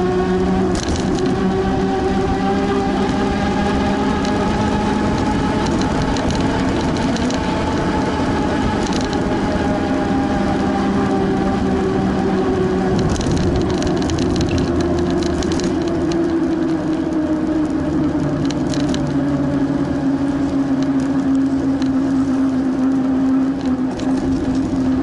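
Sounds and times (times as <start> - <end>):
bicycle tyres rolling hum: 0.0 - 25.0
crackle and rattle: 0.3 - 25.0.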